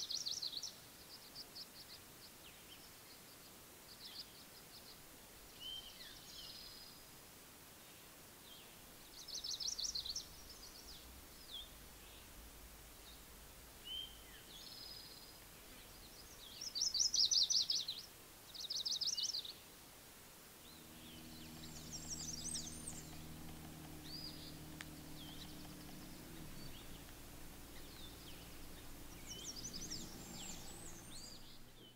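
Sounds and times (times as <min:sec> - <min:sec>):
songbirds singing: 0:00.0 - 0:07.2, 0:07.8 - 0:19.9, 0:20.5 - 0:31.9
low steady hum: 0:08.6 - 0:16.6, 0:20.0 - 0:31.9.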